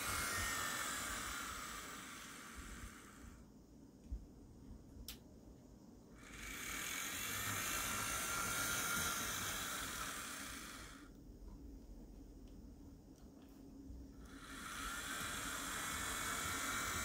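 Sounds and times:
model train motor whirring: 0:00.0 - 0:03.4, 0:06.2 - 0:11.1, 0:14.2 - 0:17.0
click: 0:05.0 - 0:05.2.

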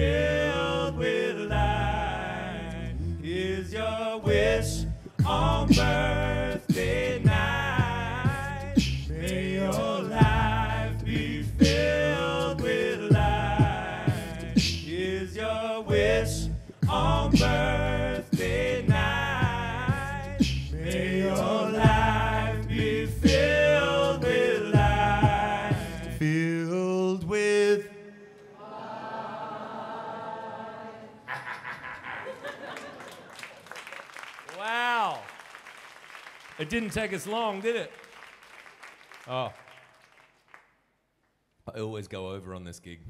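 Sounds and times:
vocal bass line: 0:00.0 - 0:27.4
man singing looped harmonies: 0:00.0 - 0:28.3.

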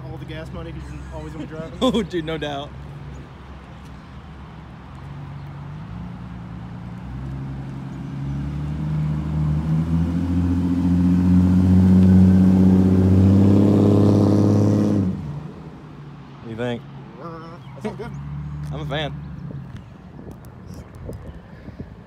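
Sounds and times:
truck exhaust rumbling: 0:07.0 - 0:15.8.

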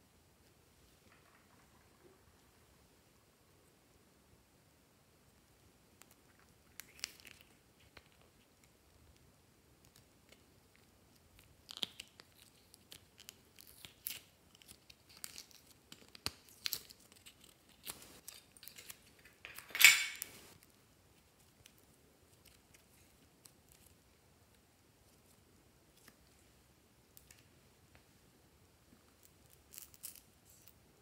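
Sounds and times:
clay tearing crackle: 0:06.0 - 0:08.8, 0:09.8 - 0:19.3, 0:29.2 - 0:30.8.

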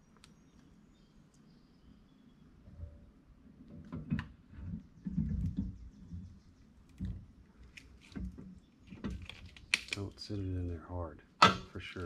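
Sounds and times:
low knocks and rubbing: 0:02.7 - 0:07.4.

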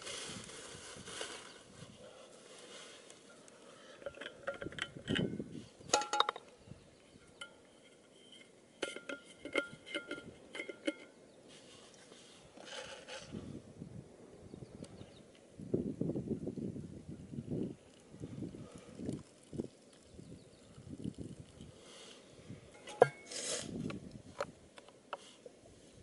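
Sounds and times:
metal bottle clicks and clinks: 0:04.0 - 0:05.3, 0:05.9 - 0:06.5, 0:08.8 - 0:11.1, 0:22.8 - 0:23.3.

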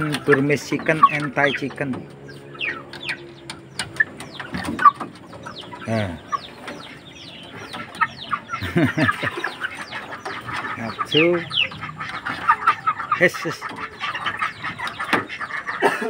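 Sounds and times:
chicks peeping: 0:00.0 - 0:16.0
chicken squawk: 0:03.9 - 0:16.0.

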